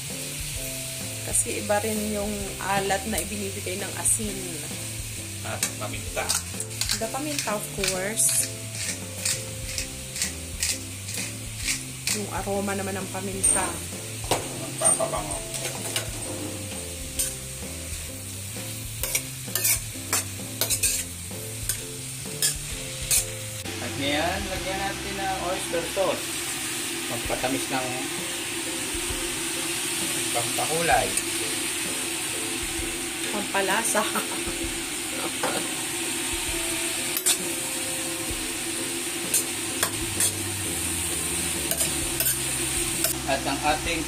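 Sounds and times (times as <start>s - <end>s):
vegetables sizzling in a pan: 0.0s - 44.0s
metal spatula scraping a pan: 5.6s - 12.3s, 14.6s - 17.5s, 19.0s - 23.3s, 37.1s - 37.6s, 39.3s - 40.4s, 41.6s - 43.2s
metal spoon clinking against pan: 19.0s - 21.1s, 22.4s - 23.2s.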